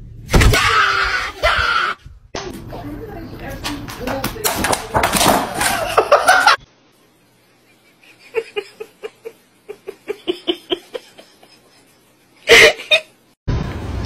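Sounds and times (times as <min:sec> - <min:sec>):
person giggling: 0:05.7 - 0:06.6, 0:07.7 - 0:13.2.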